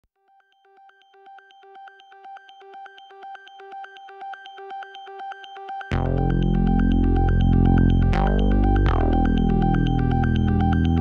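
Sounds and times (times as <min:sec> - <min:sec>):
synth track with deep bass: 0:05.6 - 0:11.0
pulsing synthesizer tone: 0:05.9 - 0:11.0.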